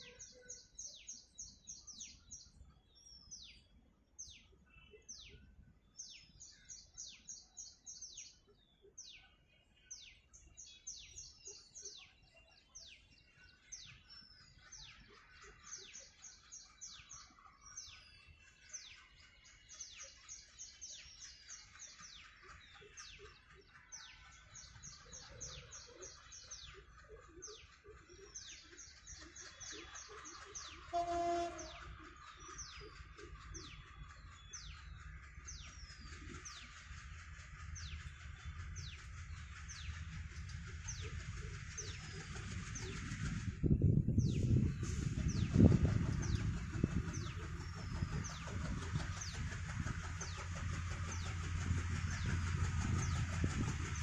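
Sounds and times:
birds chirping: 0.0s - 54.0s
diesel locomotive rumble: 0.0s - 54.0s
locomotive horn blast: 31.0s - 31.8s.

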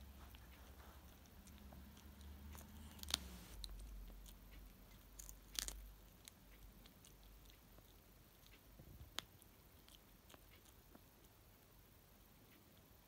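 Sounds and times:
cat crunching leaves: 0.6s - 8.6s.

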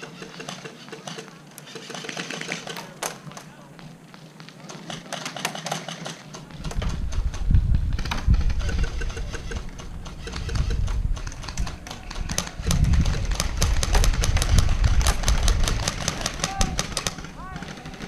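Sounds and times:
airsoft guns clicking: 0.0s - 7.4s, 8.0s - 18.0s
wind buffeting microphone: 6.3s - 18.0s.

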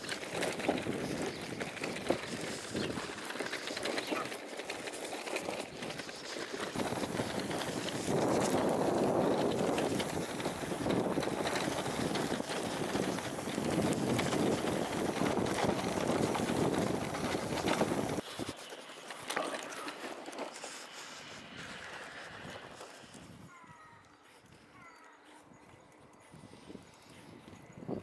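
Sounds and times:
wind buffeting microphone: 0.0s - 4.3s, 6.6s - 18.6s, 21.4s - 23.8s, 25.6s - 28.0s
light wind: 0.0s - 28.0s.

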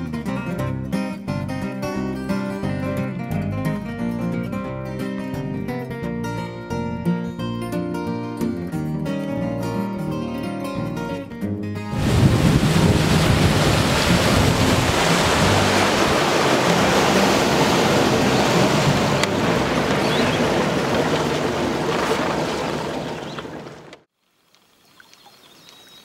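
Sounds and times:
wind on microphone: 11.9s - 23.8s
water against hull: 11.9s - 24.1s
low boat engine drone: 12.0s - 24.1s.

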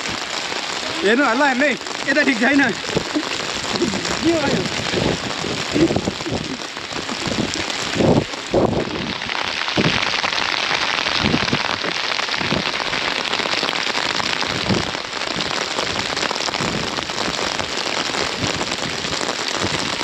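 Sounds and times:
steady rain falling: 0.0s - 20.0s
dull low thumps: 2.7s - 9.1s.

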